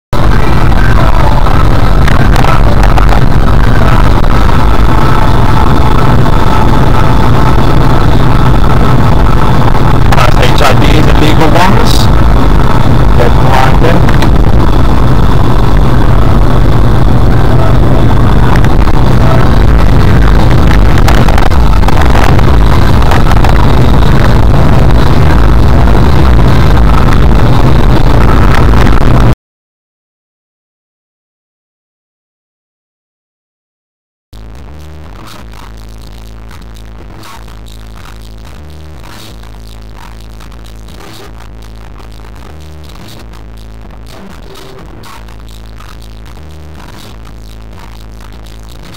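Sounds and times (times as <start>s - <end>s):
car engine and road noise: 0.2s - 29.4s.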